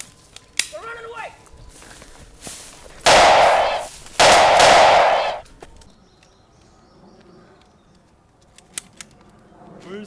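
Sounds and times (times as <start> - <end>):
loud bursts of gunfire: 3.1 - 5.4.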